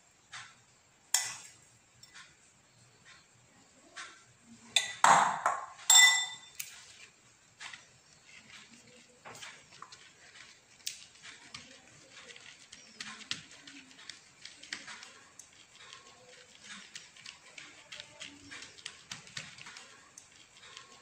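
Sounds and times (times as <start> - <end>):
metal spoon clinking glass bowl: 1.2 - 1.5, 4.8 - 6.7
leaf rustling and tapping: 6.5 - 21.0.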